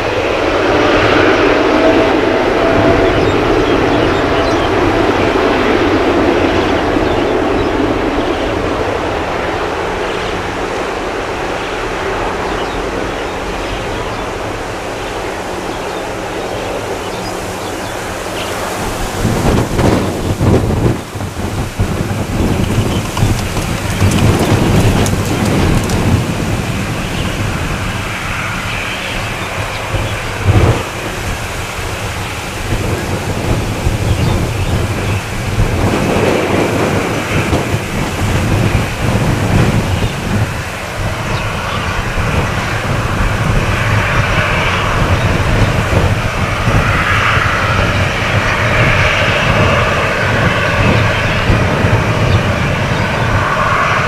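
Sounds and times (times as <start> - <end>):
jet engines rushing: 0.0 - 54.0
rough low crackling rumble: 16.7 - 54.0.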